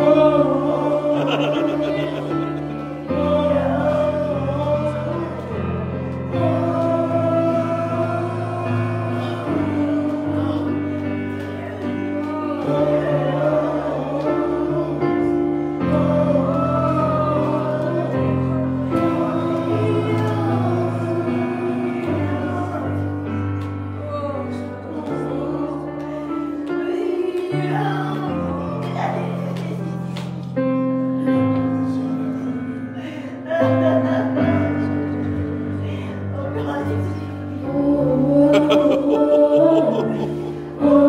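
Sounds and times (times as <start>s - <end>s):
sustained instrumental chords: 0.0s - 24.1s, 36.5s - 41.0s
congregation singing: 0.0s - 41.0s.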